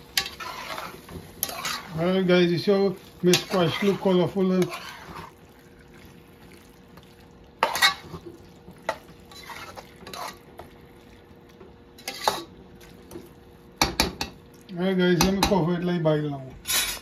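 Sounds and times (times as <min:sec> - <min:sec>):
metal spoon scraping a pot: 0:00.2 - 0:02.0, 0:03.3 - 0:05.3, 0:07.6 - 0:08.2, 0:09.3 - 0:10.5, 0:12.0 - 0:12.5.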